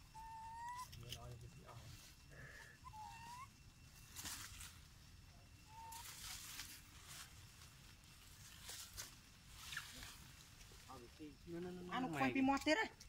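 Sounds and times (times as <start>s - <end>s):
high-pitched animal calls: 0.0s - 1.0s, 2.4s - 3.7s, 5.6s - 6.4s
faint outdoor ambience: 0.0s - 13.0s
dry leaves rustling: 3.2s - 11.4s.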